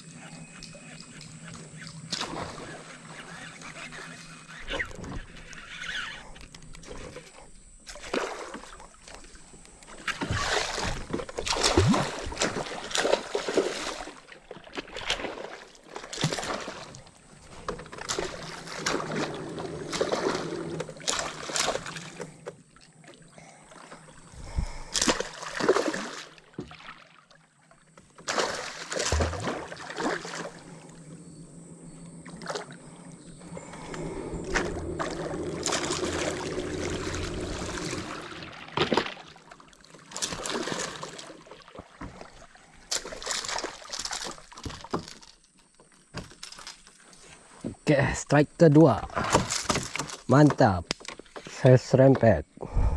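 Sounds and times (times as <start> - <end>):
faint high whine: 0.0 - 10.8, 28.4 - 39.7
water splashing around boat: 0.0 - 52.9.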